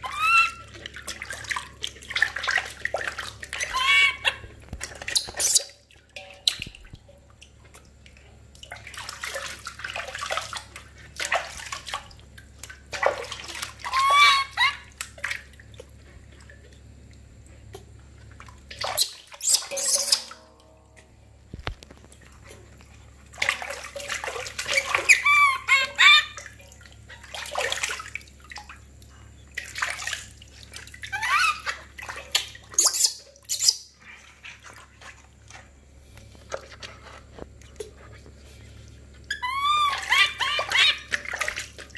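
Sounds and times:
baby monkey crying: 0.0s - 0.7s, 3.6s - 4.5s, 13.8s - 15.0s, 24.7s - 26.4s, 31.1s - 31.8s, 39.3s - 41.1s
water splashing in metal basin: 0.0s - 38.6s, 39.2s - 41.9s.

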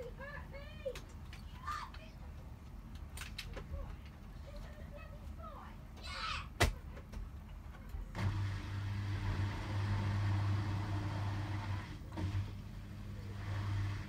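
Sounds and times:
drain pump humming: 8.1s - 14.0s.

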